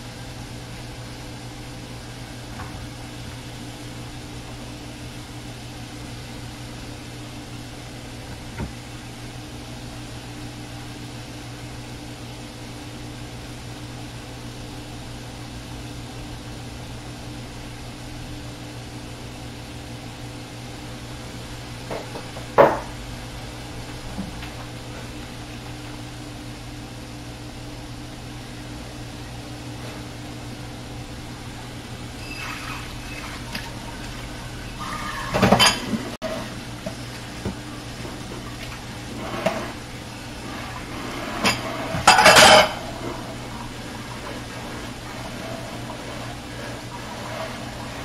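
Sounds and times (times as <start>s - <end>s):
kitchen appliance fan hum: 0.0s - 48.0s
kitchen utensils clattering: 32.2s - 36.5s, 40.4s - 48.0s.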